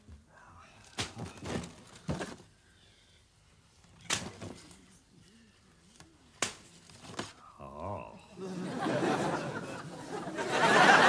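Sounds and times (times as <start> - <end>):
sharp snap: 4.0 - 4.4, 6.4 - 6.7.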